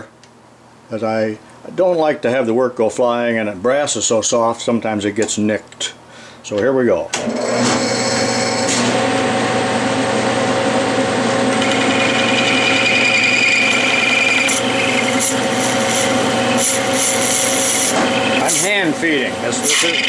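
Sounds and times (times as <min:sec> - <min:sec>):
lathe motor and gear hum: 0:07.2 - 0:20.0.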